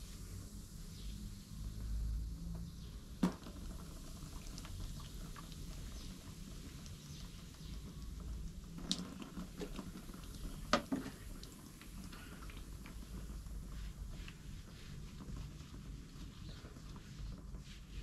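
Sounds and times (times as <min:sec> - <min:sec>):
wet dripping and squelching: 0:03.5 - 0:17.4.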